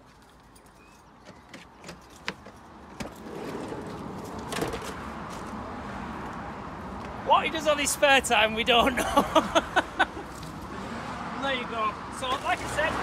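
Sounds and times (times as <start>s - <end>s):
sliding door rolling open: 3.0s - 4.9s.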